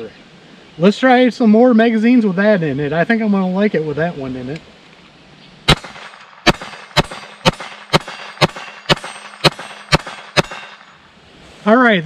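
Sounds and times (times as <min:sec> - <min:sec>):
pistol shots: 0:05.7 - 0:11.0.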